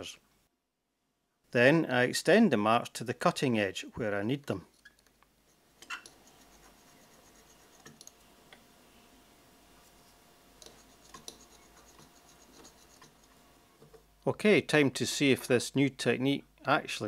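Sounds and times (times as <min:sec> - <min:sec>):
scriber scratching on steel: 0:04.8 - 0:08.0, 0:09.8 - 0:13.4.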